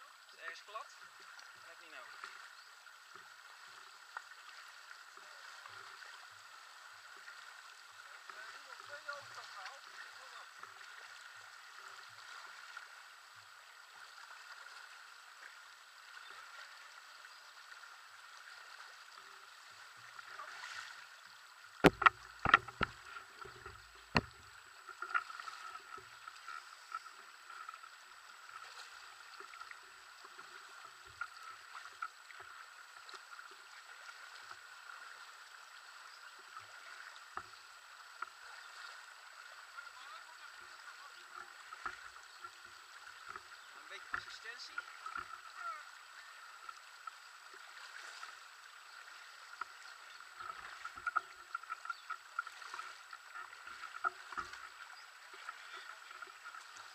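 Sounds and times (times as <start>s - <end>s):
river water rushing and splashing: 3.1s - 56.9s
sharp knocks: 21.8s - 22.9s.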